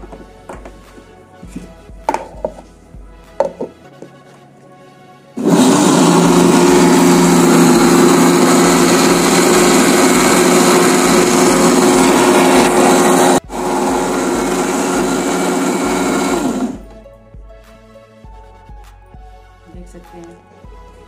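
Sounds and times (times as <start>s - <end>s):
mixer grinder motor running: 5.4s - 16.9s.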